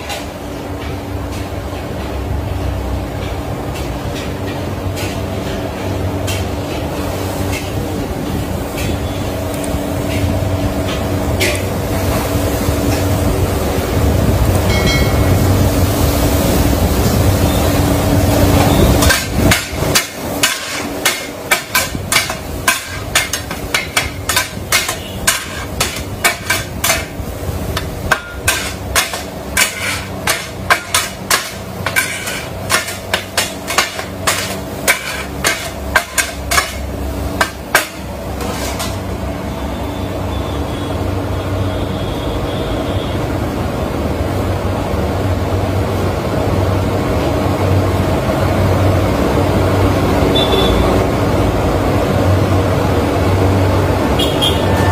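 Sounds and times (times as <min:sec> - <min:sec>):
metal blades clacking on griddle: 0:19.0 - 0:39.1.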